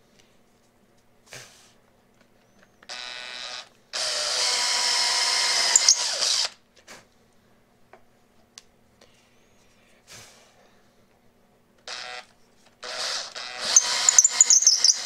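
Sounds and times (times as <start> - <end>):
electric drill running: 2.9 - 6.6, 11.8 - 15.0.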